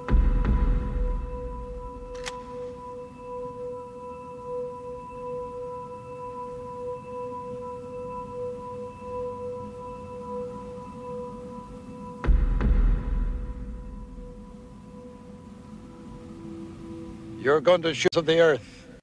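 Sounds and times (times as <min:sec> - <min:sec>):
pulsing pure tone drone: 0:00.0 - 0:19.0
loud low boom: 0:00.1 - 0:02.1, 0:12.2 - 0:14.6.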